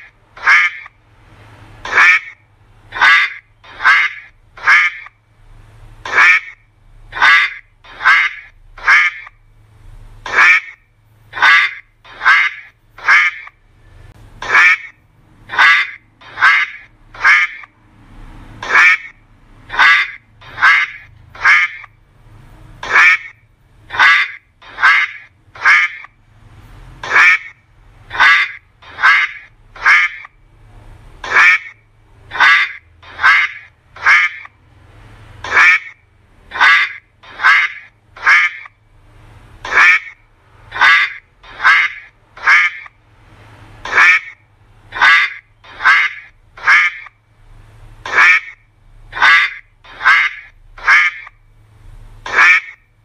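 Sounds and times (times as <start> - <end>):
duck quacking: 0.0 - 1.0, 1.8 - 5.2, 6.0 - 9.4, 10.2 - 13.6, 14.4 - 17.7, 18.5 - 22.0, 22.8 - 26.2, 27.0 - 30.4, 31.2 - 34.6, 35.4 - 38.8, 39.6 - 43.0, 43.8 - 47.2, 48.0 - 51.4, 52.2 - 52.8.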